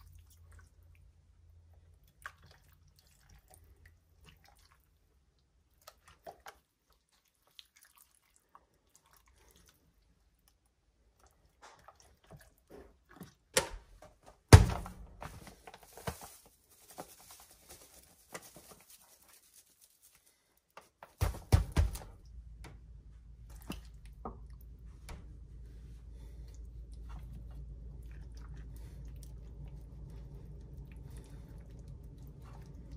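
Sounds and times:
faint drips: 0:00.0 - 0:13.5, 0:26.1 - 0:32.9
loud thump: 0:14.5 - 0:15.1
paper bag crinkling: 0:14.7 - 0:20.5.

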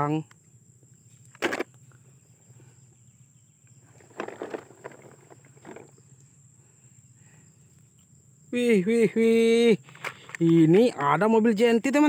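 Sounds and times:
toy truck rustling over grass: 0:03.8 - 0:06.2, 0:09.8 - 0:11.2.

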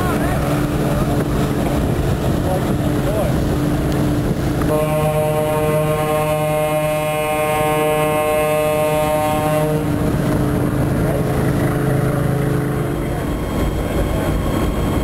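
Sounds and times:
boat engine rumble: 0:00.0 - 0:15.0
water: 0:00.0 - 0:15.0
tugboat horn blast: 0:04.6 - 0:10.1
low horn tone: 0:04.7 - 0:10.0.

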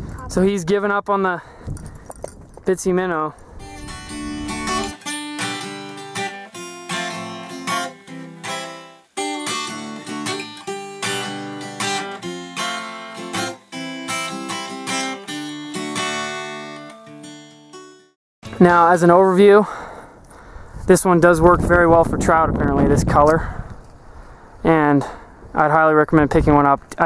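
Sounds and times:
acoustic guitar picked and strummed: 0:03.6 - 0:19.0.

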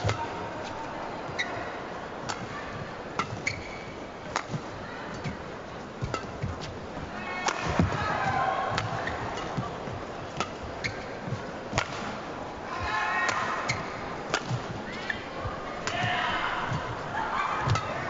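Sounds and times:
arena crowd noise: 0:00.0 - 0:18.0
rackets striking shuttlecock: 0:10.3 - 0:11.1, 0:11.7 - 0:12.2, 0:13.3 - 0:14.8.

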